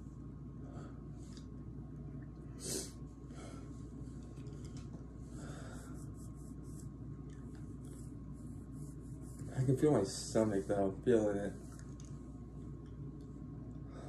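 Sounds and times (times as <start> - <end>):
steady low hum: 0.0 - 14.0
person breathing hard: 5.2 - 6.2.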